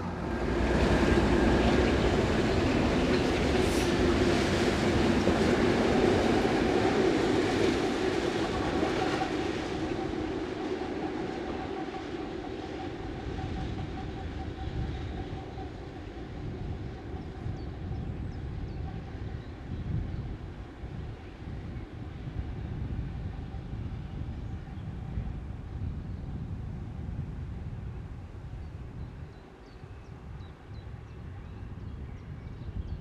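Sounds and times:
diesel locomotives engines droning: 0.0 - 33.0.

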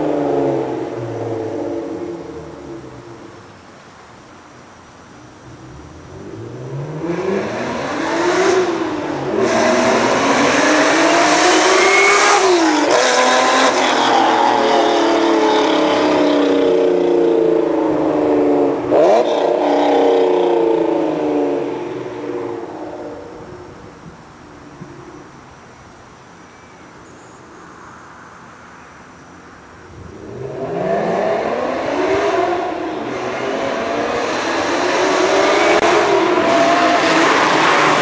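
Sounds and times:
car engine accelerating hard: 5.6 - 23.5, 29.9 - 38.0.

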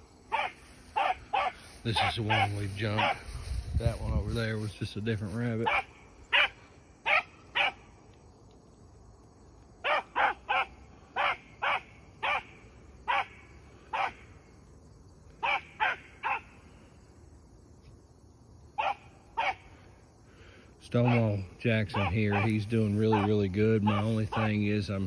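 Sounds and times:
dog baying barks: 0.3 - 3.2, 5.6 - 7.8, 9.8 - 12.5, 13.1 - 14.2, 15.4 - 16.5, 18.8 - 19.7, 21.0 - 24.5.

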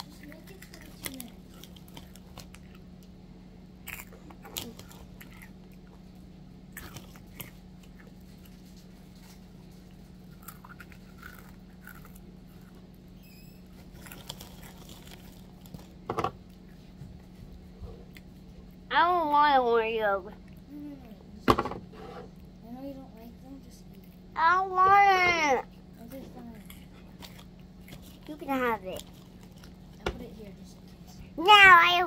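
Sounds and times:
snack crunching while chewed: 0.0 - 3.2, 3.8 - 13.1, 13.7 - 18.9, 25.7 - 30.0
steady low hum: 0.0 - 32.0.

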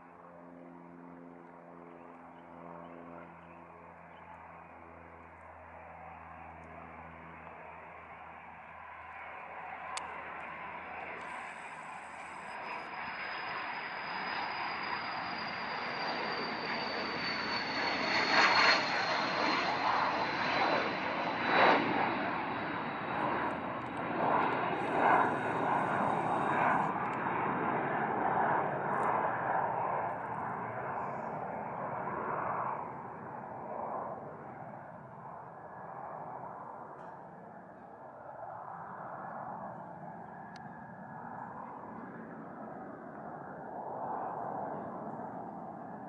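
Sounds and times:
jet taking off: 7.6 - 46.0
sharp cracks in jet roar: 23.5 - 27.2.

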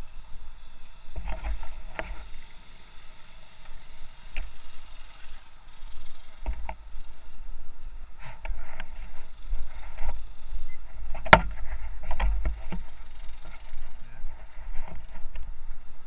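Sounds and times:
scattered knocks on camera housing: 11.2 - 12.6.

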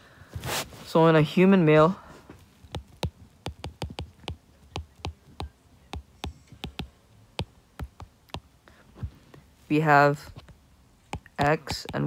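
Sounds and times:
stylus tapping on glass screen: 2.7 - 8.5, 11.1 - 12.0.

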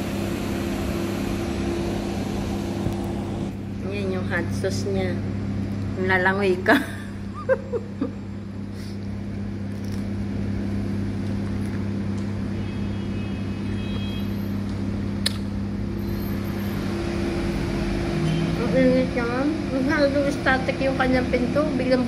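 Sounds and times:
low mechanical hum: 0.0 - 22.0
sharp click: 15.2 - 15.5.

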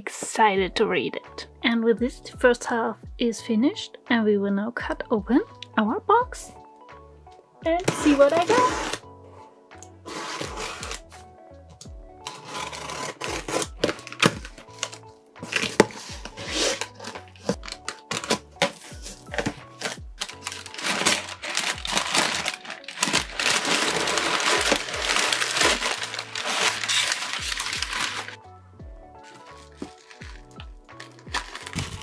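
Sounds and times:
background music: 0.0 - 32.0
cardboard box being cut open: 7.8 - 9.0, 10.0 - 11.1, 12.2 - 28.4, 31.0 - 32.0
packing material crinkling: 7.8 - 9.0, 10.1 - 11.2, 12.2 - 28.4, 29.2 - 32.0.

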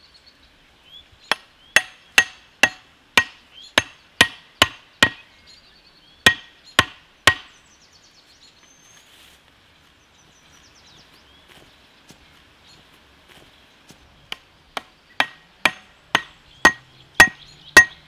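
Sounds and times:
hatchet knocking wooden stake: 1.3 - 5.2, 6.3 - 7.5, 14.3 - 18.0.

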